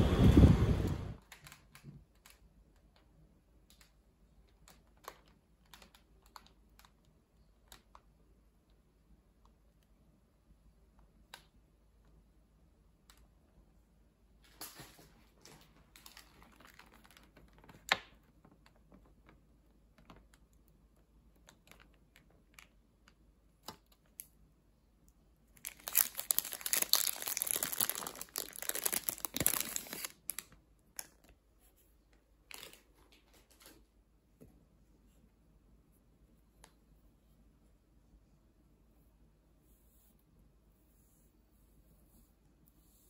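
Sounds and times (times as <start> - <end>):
plastic wrapper crinkling: 15.4 - 19.4, 25.6 - 31.4, 32.5 - 33.8.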